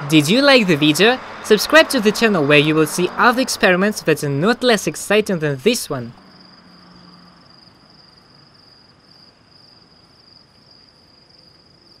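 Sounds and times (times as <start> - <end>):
insects trilling: 6.2 - 12.0.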